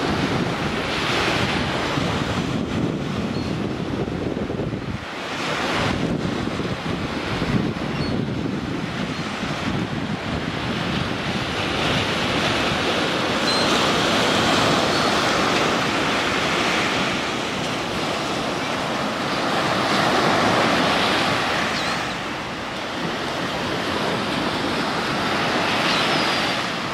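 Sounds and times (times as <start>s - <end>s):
surf breaking on a sandy beach: 0.0s - 26.9s.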